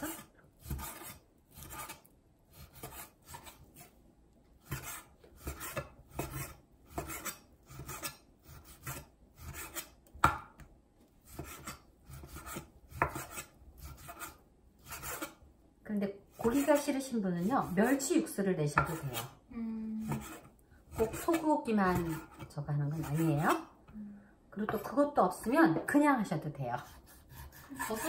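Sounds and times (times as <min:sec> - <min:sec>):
knife slicing meat on wooden board: 0:00.0 - 0:03.9, 0:04.6 - 0:10.3, 0:11.2 - 0:15.4, 0:26.8 - 0:28.0.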